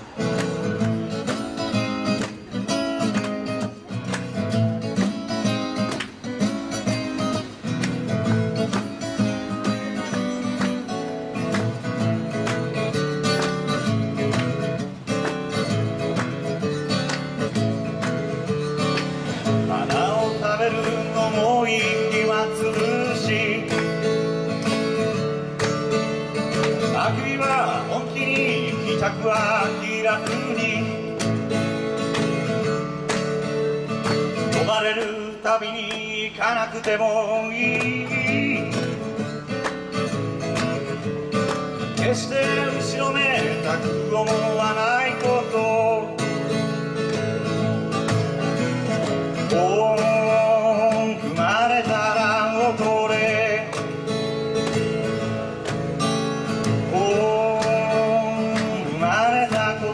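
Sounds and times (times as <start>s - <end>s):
acoustic guitar: 0.0s - 59.9s
man singing: 19.4s - 24.3s, 26.7s - 31.3s, 34.5s - 39.3s, 41.9s - 46.3s, 49.4s - 54.1s, 56.6s - 59.9s.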